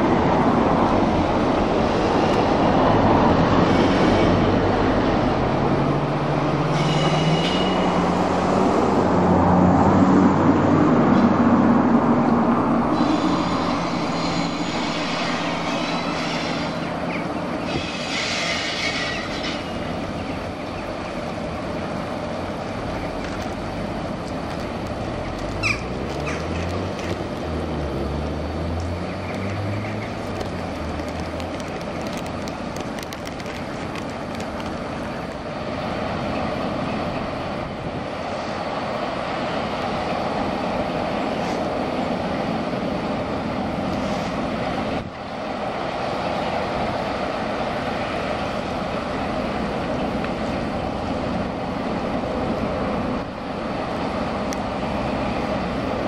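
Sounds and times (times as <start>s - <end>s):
diesel locomotive engine drone: 0.0s - 56.0s
heavy locomotive drone: 0.0s - 56.0s
high squeal: 6.6s - 8.4s, 12.5s - 19.9s.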